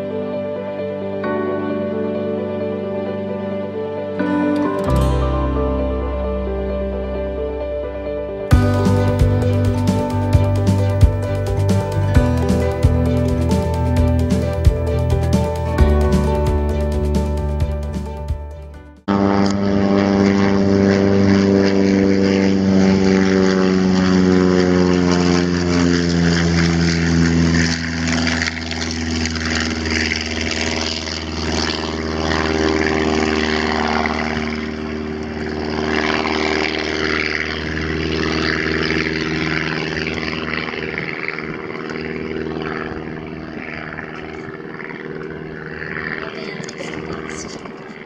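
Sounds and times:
propeller plane engine droning: 0:00.0 - 0:48.0.

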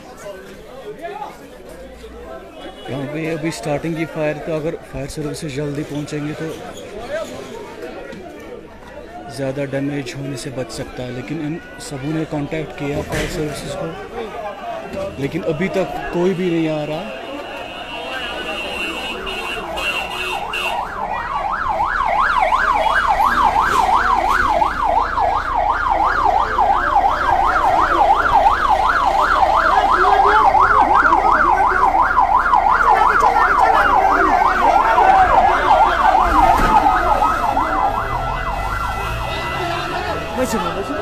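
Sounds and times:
siren yelping: 0:17.8 - 0:41.0.

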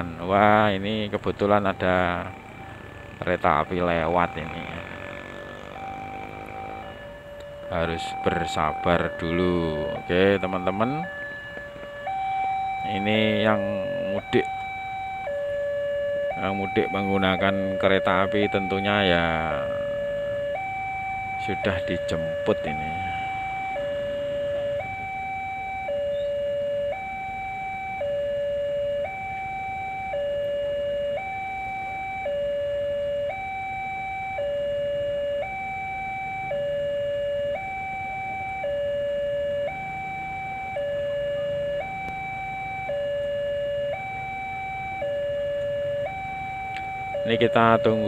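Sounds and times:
level crossing two-tone alarm: 0:00.0 - 0:48.0.

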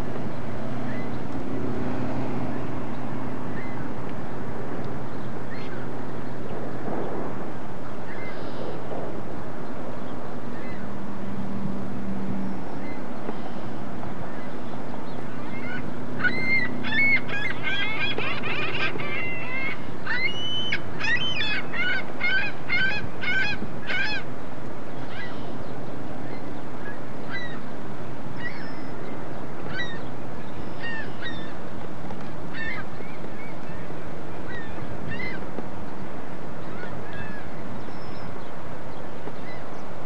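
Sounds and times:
steady low hum: 0:00.0 - 0:40.0
flock of birds calling: 0:14.3 - 0:24.3, 0:25.0 - 0:27.7, 0:28.4 - 0:35.6, 0:36.6 - 0:38.5.

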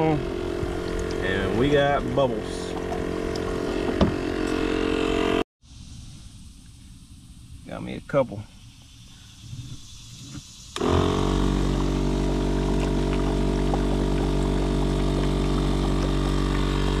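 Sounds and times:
air pump humming: 0:00.0 - 0:05.4, 0:08.8 - 0:17.0
air bubbling through water: 0:09.3 - 0:17.0.

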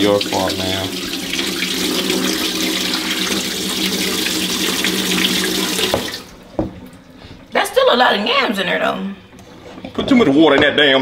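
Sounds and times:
water pouring into sink: 0:00.0 - 0:07.0.

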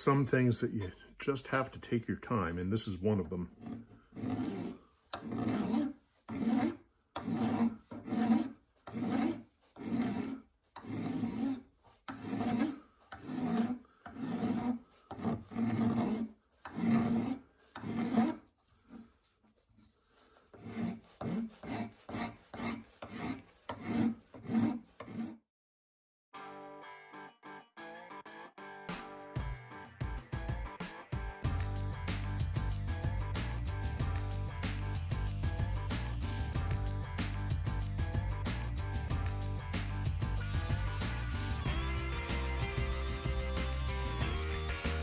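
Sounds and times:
hand file rasping on brass: 0:03.6 - 0:25.4.

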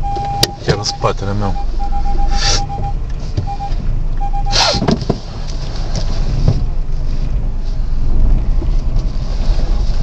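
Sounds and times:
rapidly pulsing beep: 0:00.0 - 0:04.8
low rumble in car cabin: 0:00.0 - 0:10.0.

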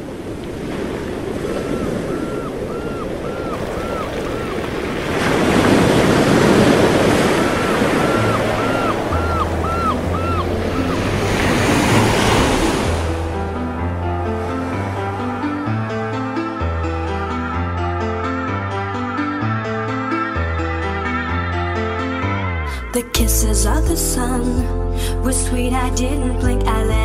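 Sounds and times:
wind: 0:00.0 - 0:18.0
sea waves washing: 0:00.0 - 0:20.3.

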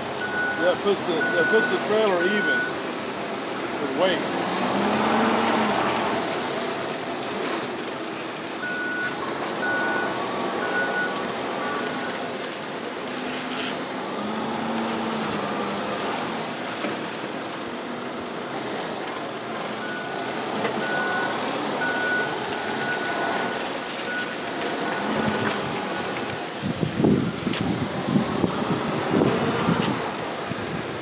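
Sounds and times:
forklift engines revving: 0:00.0 - 0:31.0
backup alarm beeping: 0:00.2 - 0:02.8, 0:08.6 - 0:12.2, 0:20.8 - 0:25.4.

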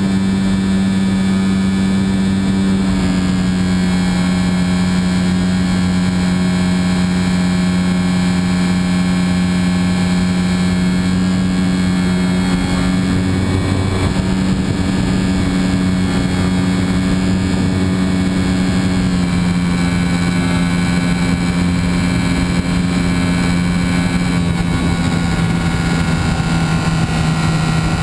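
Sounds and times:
air rushing past: 0:00.0 - 0:06.3, 0:10.4 - 0:22.2
model airplane motor and propeller: 0:00.0 - 0:28.0.

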